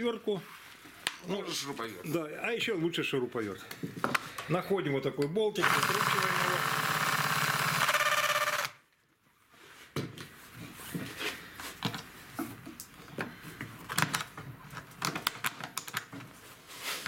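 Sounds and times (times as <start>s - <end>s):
cordless screwdriver whirring: 5.6s - 8.8s.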